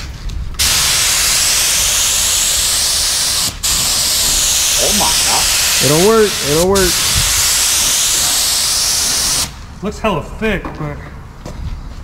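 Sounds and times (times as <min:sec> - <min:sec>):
paint spray gun hissing: 0:00.6 - 0:09.6.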